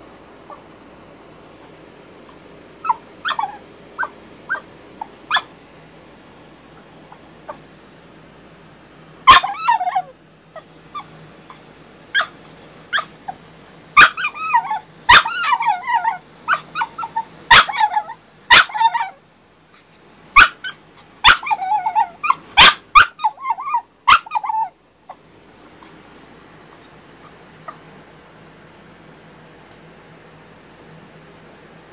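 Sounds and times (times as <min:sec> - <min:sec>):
dog barking and whining: 0:00.4 - 0:00.8, 0:01.5 - 0:05.7, 0:06.7 - 0:07.7, 0:09.2 - 0:26.1, 0:26.7 - 0:28.1.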